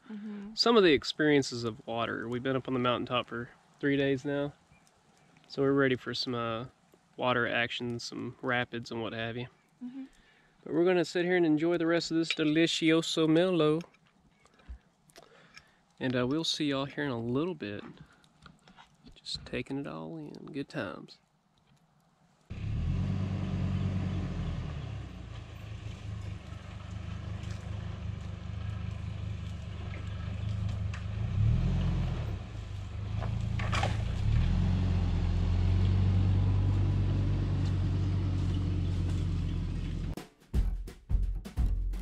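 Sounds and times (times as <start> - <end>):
vehicle engine running: 22.5 - 40.2.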